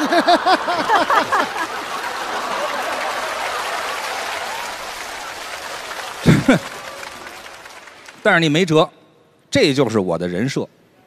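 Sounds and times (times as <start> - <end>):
studio audience laughing: 0.0 - 4.6, 6.0 - 6.9
audience applauding: 0.0 - 8.7.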